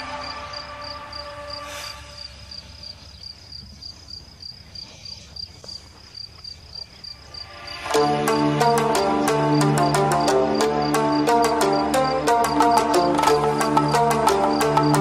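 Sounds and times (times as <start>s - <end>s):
background music: 0.0s - 2.9s, 7.2s - 15.0s
insect chirping: 0.0s - 15.0s.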